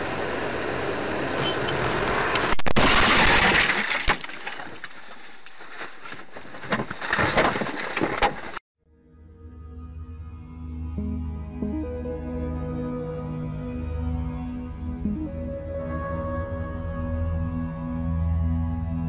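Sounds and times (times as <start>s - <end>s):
road noise: 0.0s - 8.6s
car crash impact: 1.9s - 4.9s
crunching knocks and bangs: 2.6s - 8.6s.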